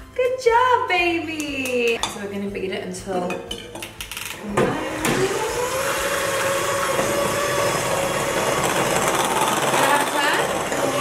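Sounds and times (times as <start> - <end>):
electric hand mixer whining: 4.3 - 11.0.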